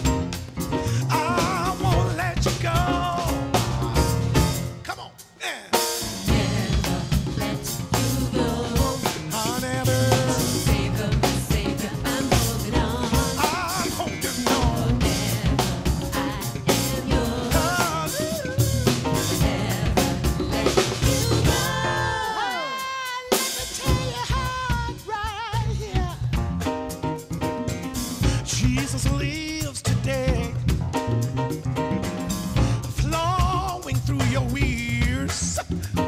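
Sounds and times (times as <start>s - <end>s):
drum kit: 0.0s - 36.0s
gospel band playing: 0.0s - 36.0s
voices singing: 5.4s - 25.1s.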